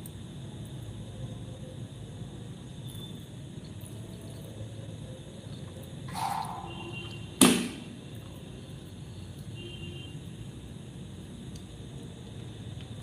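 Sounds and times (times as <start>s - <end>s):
sharp knock: 6.1s - 7.9s.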